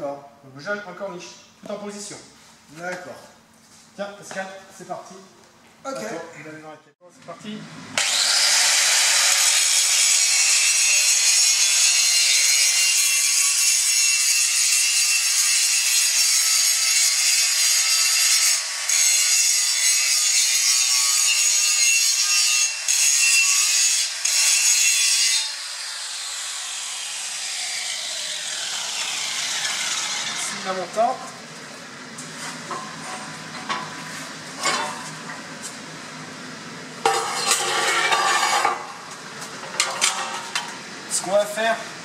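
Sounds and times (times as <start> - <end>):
angle grinder grinding steel: 8.0 - 30.9, 37.0 - 39.1.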